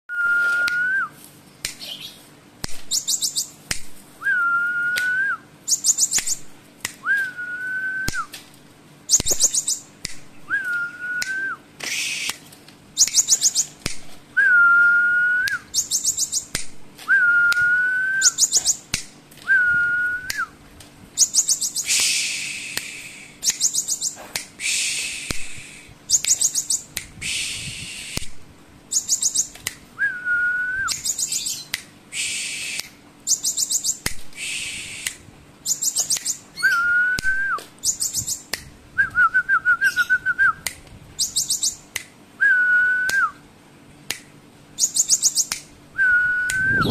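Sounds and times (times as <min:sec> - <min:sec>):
bird whistled note: 0:46.0 - 0:46.9.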